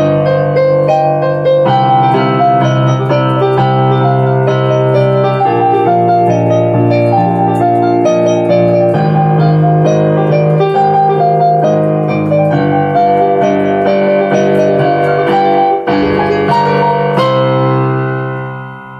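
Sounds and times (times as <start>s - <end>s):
digital piano solo piece: 0.0s - 18.9s.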